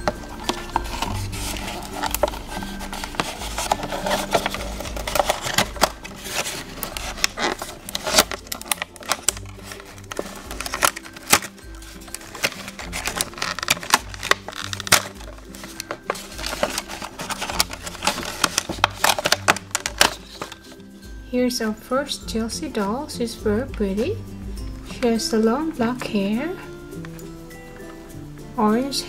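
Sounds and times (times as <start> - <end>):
plastic packaging crinkling: 0.0 - 20.9
upbeat background music: 0.0 - 29.0.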